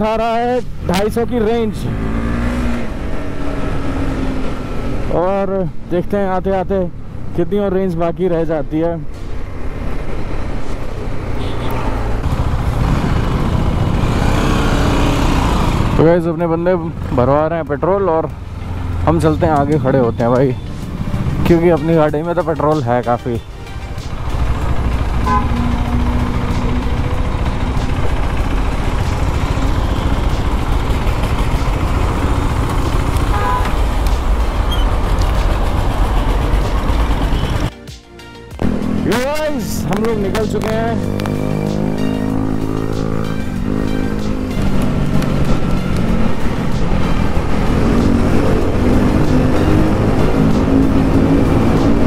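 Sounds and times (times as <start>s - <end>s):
road and traffic noise: 0.0s - 52.0s
motorcycle engine running: 11.4s - 22.0s, 23.8s - 37.7s, 38.6s - 52.0s.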